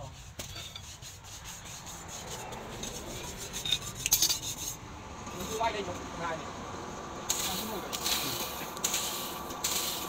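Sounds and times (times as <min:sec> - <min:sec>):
metal scraping on charcoal: 0:00.0 - 0:04.8, 0:07.3 - 0:10.0.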